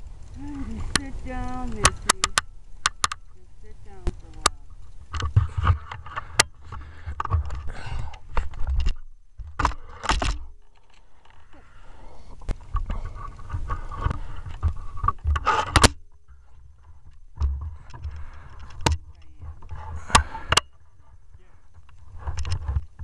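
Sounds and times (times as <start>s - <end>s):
sharp click: 0.9s - 3.3s.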